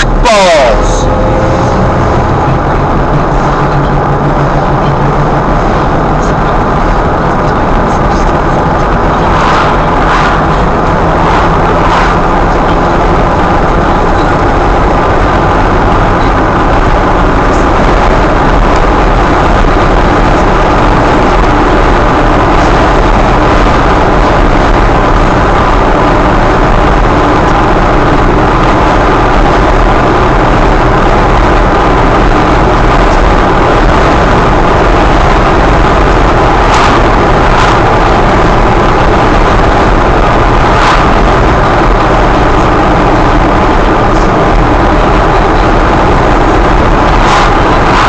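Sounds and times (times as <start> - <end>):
vehicle engine and road noise: 0.0 - 48.0.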